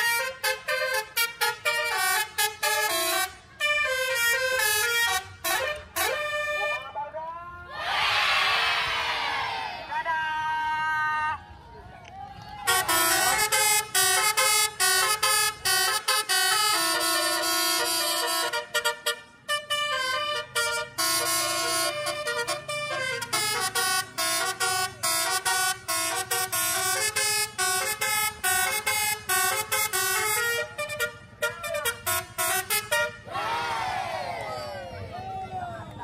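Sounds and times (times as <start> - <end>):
musical air horn tune: 0.0 - 6.8, 12.7 - 33.3.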